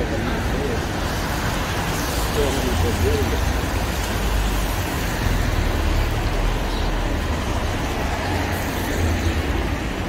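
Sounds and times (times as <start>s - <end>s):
city street noise: 0.0s - 10.0s.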